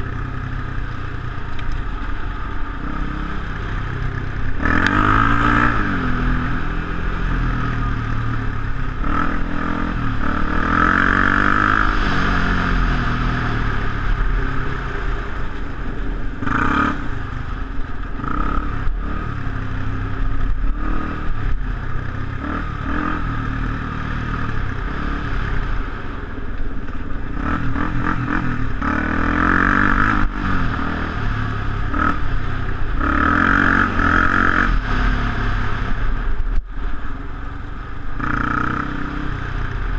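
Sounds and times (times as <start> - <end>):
quad bike engine revving: 2.7 - 15.1, 16.4 - 17.5, 18.1 - 26.0, 27.3 - 36.1, 38.2 - 39.9.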